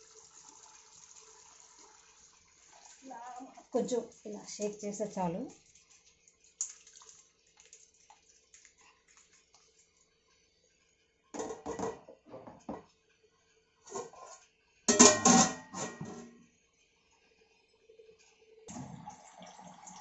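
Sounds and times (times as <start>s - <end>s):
metal pot and lid clattering: 11.4s - 12.8s, 13.9s - 16.4s.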